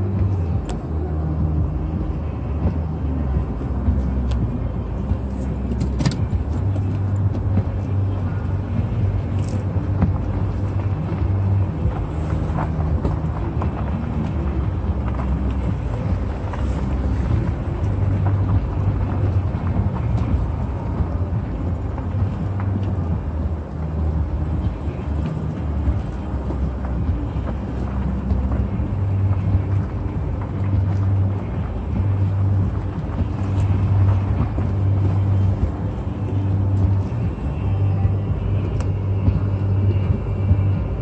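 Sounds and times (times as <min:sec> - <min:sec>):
car engine and tyres rumbling: 0:00.0 - 0:41.0.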